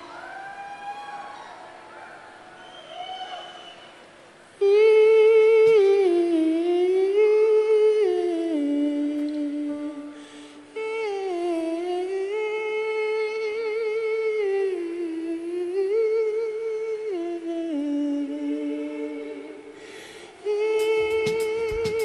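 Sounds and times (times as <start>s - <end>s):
wordless high humming vocal: 4.5s - 22.0s
drum hits: 20.8s - 22.0s.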